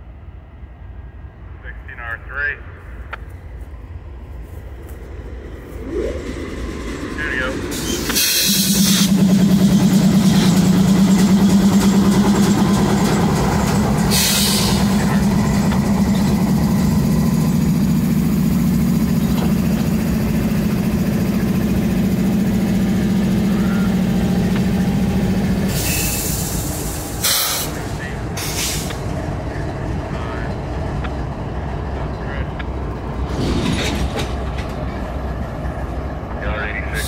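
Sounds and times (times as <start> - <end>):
diesel locomotive engine drone: 0.0 - 37.0
brief hisses: 27.2 - 27.8.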